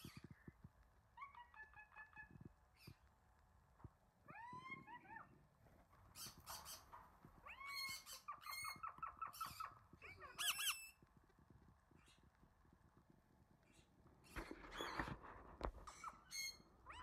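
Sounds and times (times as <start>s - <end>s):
parrot squawk: 7.5s - 11.0s.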